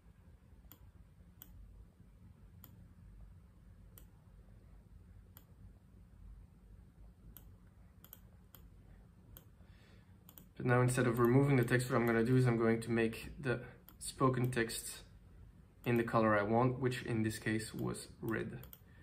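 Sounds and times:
faint computer mouse clicks: 7.3s - 8.7s, 10.2s - 10.5s, 17.8s - 18.9s.

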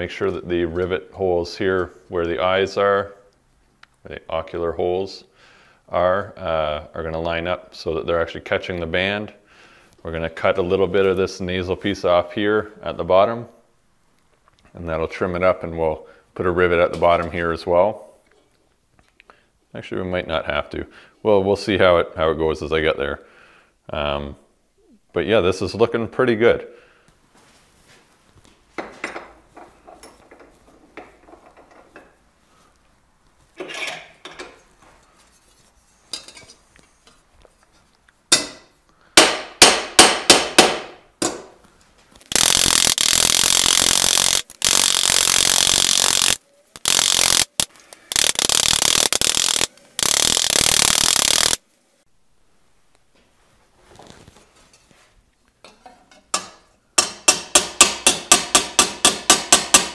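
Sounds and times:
handling sheet steel parts: 33.5s - 38.7s.

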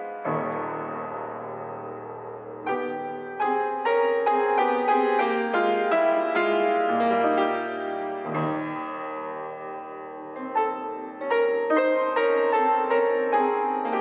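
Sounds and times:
solo grand piano playing: 0.0s - 14.0s.

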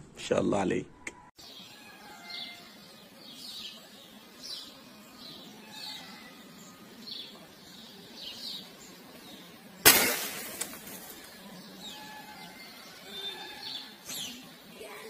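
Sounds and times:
small birds chirping: 0.6s - 15.0s
loud rifle shot: 9.8s - 10.7s.

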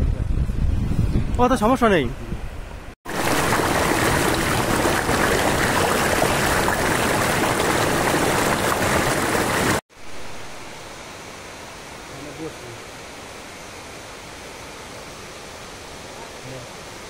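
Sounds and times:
water rushing over rocks: 3.1s - 10.6s.

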